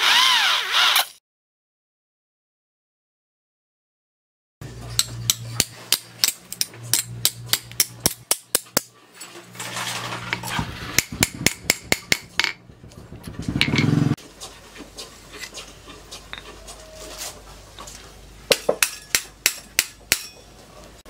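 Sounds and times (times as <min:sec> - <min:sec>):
hammer striking steel on anvil: 0:04.9 - 0:08.9, 0:11.0 - 0:12.6, 0:18.5 - 0:20.4.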